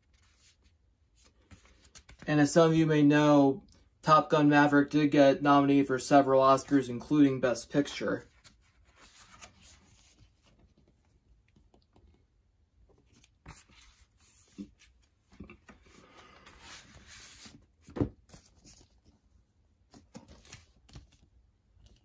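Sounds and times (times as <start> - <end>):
paper and card rustling: 0.0 - 2.3, 7.7 - 12.2, 12.9 - 22.0.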